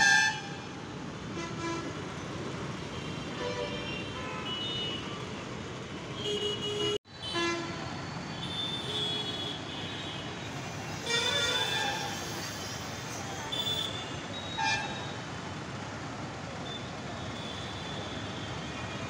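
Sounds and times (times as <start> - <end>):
traffic hum: 0.0 - 19.0
vehicle horns tooting: 6.2 - 10.4.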